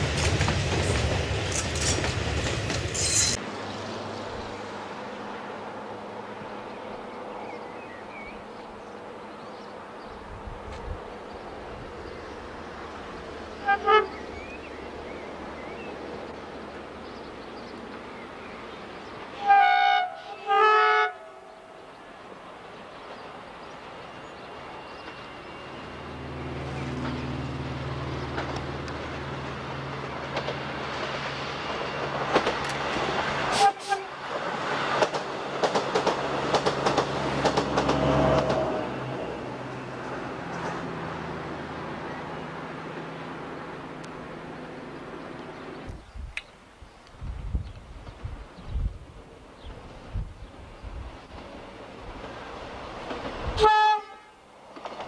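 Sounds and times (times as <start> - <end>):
diesel locomotive engine rumble: 0.0 - 46.4
train horn blasts: 13.6 - 14.3, 19.4 - 21.8, 33.5 - 34.2, 53.6 - 54.4.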